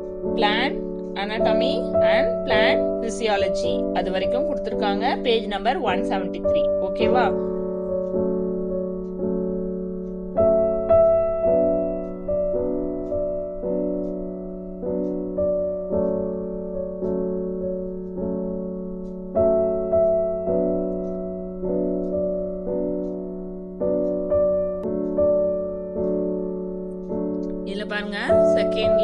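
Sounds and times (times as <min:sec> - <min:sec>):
slow piano music: 0:00.0 - 0:29.0.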